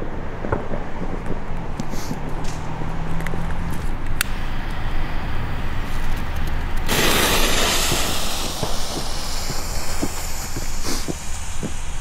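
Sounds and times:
low background rumble: 0.0 - 12.0
firework fuse hissing: 1.8 - 2.5, 4.2 - 12.0.

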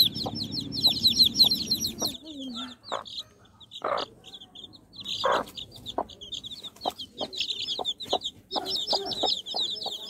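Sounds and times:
chicks peeping: 0.0 - 10.0
hen clucking: 0.0 - 10.0.

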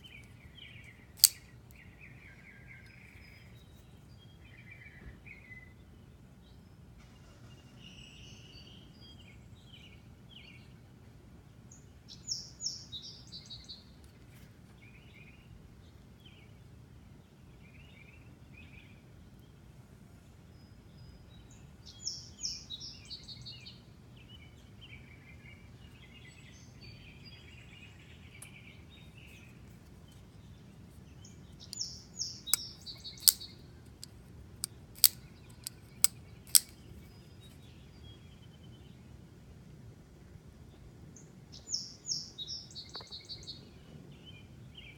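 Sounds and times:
songbird singing: 0.0 - 6.6, 20.6 - 39.1, 41.2 - 44.9
folding knife clicking open and shut: 0.1 - 1.8, 31.7 - 36.8.

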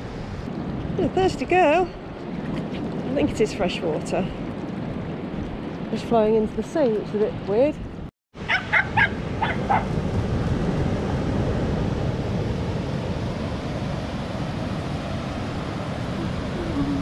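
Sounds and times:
dog yipping: 8.5 - 9.9.

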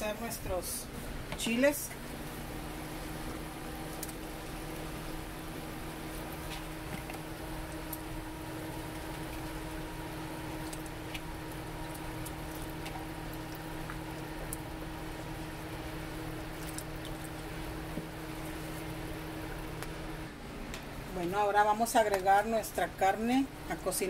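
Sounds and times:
steady low hum: 0.0 - 24.0
water bubbling in a pan: 2.2 - 20.3.

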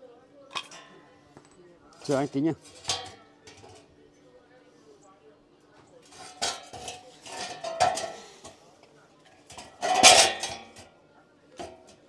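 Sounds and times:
metal parts clanking: 2.0 - 3.8, 6.1 - 8.5, 9.4 - 10.8.

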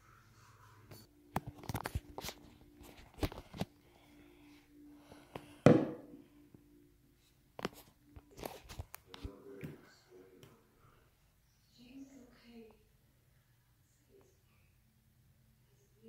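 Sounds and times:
loud thump: 5.7 - 6.1.

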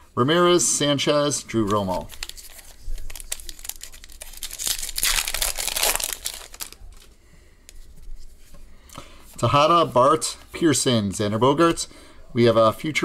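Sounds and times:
card pack wrapper crinkling: 1.6 - 7.1.

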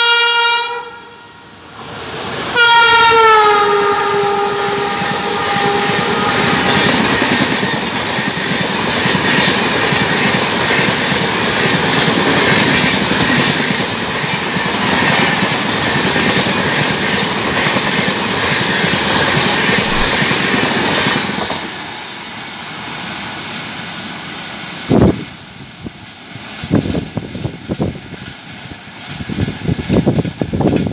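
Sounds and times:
locomotive horn: 0.0 - 1.5, 2.6 - 7.0
train wheels rattling on rail: 4.1 - 22.4, 25.9 - 30.9.

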